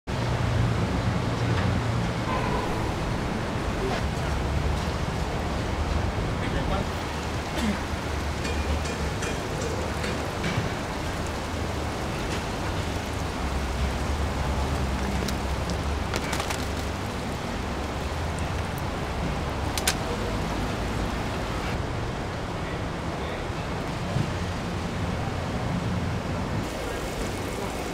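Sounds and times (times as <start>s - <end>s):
water rushing and bubbling: 2.2s - 21.8s
net clicking and knocking: 15.2s - 17.1s.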